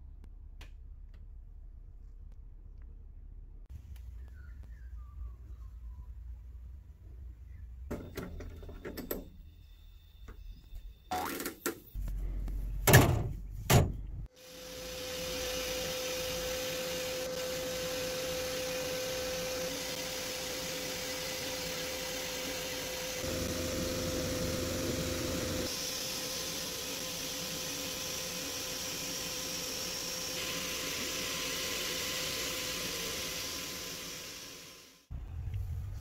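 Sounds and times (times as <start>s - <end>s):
sandblaster hissing: 14.3s - 35.1s.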